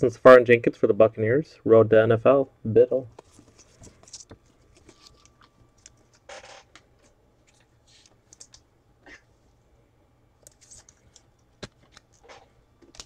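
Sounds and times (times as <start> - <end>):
trading cards clicking and rustling: 3.2 - 8.7, 10.4 - 13.0.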